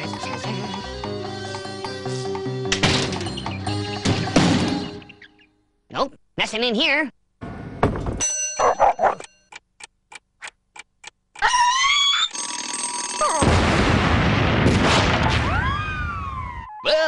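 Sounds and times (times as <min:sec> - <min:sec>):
sharp timer ticks: 0:09.2 - 0:11.5
loud dynamite explosion: 0:13.4 - 0:16.4.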